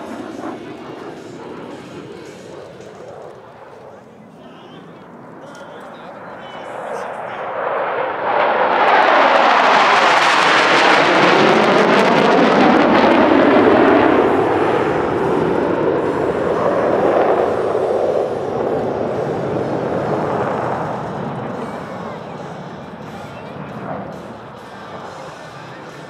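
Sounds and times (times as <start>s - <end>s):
jet engine roar: 0.0s - 26.0s.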